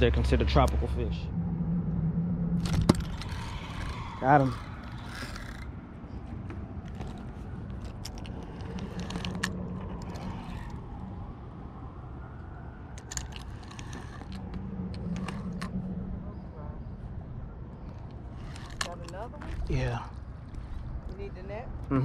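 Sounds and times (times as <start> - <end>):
fishing reel gears whirring: 2.6 - 5.8, 7.8 - 11.1, 13.0 - 15.8, 18.3 - 19.7
reel clicks: 4.5 - 5.7.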